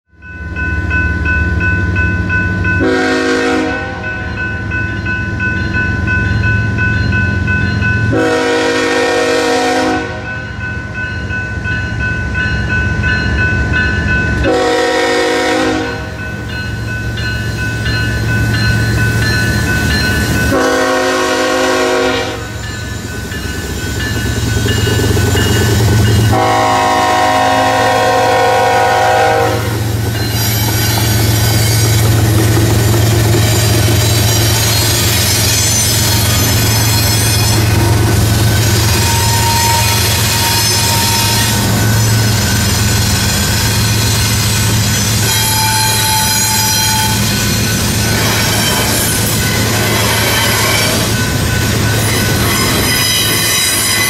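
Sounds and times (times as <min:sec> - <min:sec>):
crossing warning bell dinging: 0:00.1 - 0:54.0
locomotive horn blasts: 0:02.8 - 0:04.2, 0:08.1 - 0:10.3, 0:14.4 - 0:16.2, 0:20.5 - 0:22.6, 0:26.3 - 0:29.9, 0:38.9 - 0:42.3, 0:45.2 - 0:47.3.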